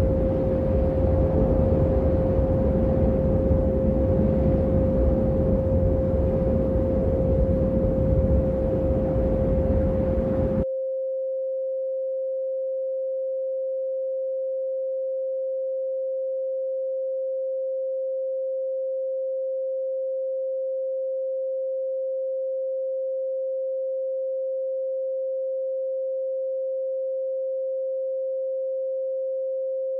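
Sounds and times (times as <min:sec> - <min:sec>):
rumbling noise: 0:00.0 - 0:10.6
steady sine tone: 0:00.0 - 0:29.9.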